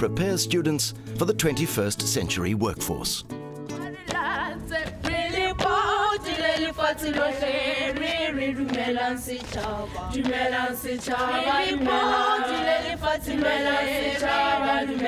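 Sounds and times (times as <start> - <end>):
children's choir singing: 3.8 - 15.0.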